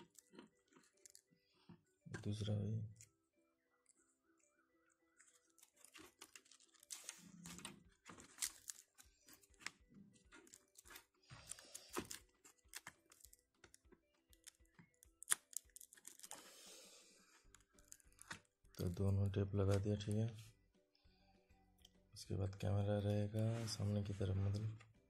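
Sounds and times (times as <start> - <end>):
tape and strap rustling: 5.3 - 16.5.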